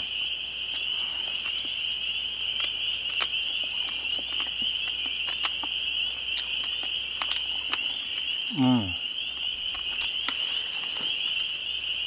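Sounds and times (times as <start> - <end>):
insect chorus trilling: 0.0 - 12.0
dry leaves crackling: 9.2 - 12.0.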